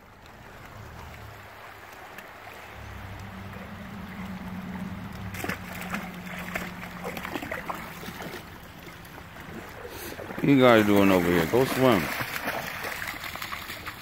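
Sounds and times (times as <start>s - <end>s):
river water running: 0.0s - 14.0s
dog splashing in water: 0.5s - 14.0s.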